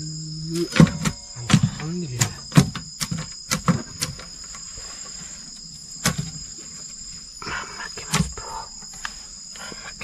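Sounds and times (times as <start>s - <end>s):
insects trilling: 0.0s - 10.0s
sharp knocks: 0.7s - 4.3s.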